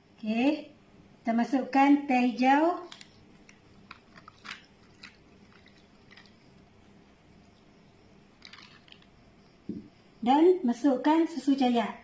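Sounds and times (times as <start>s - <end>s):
ice cubes crackling in a glass: 2.6s - 6.7s, 8.4s - 9.2s
tea pouring over ice: 2.7s - 6.7s, 8.3s - 9.2s.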